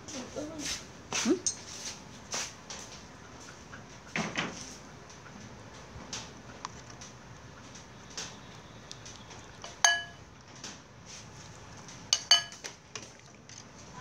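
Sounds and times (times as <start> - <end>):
metal ladle clinking: 9.6 - 10.2, 12.1 - 12.6.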